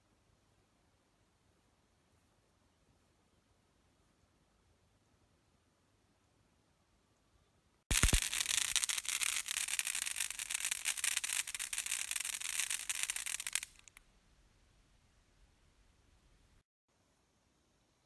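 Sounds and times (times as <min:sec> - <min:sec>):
firework hissing and crackling: 0:07.9 - 0:14.0.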